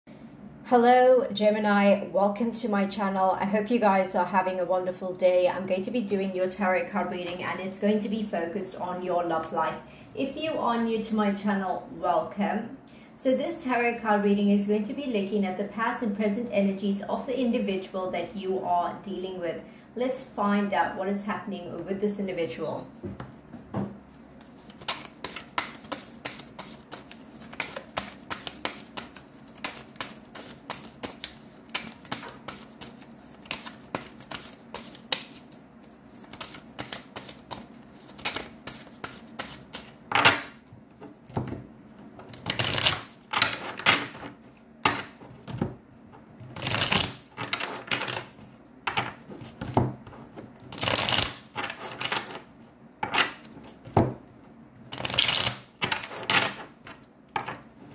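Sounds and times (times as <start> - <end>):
deck of cards swishing: 24.4 - 39.9
cards shuffled by hand: 24.4 - 40.0, 42.2 - 44.6, 46.5 - 49.7, 50.7 - 52.4, 54.9 - 56.6.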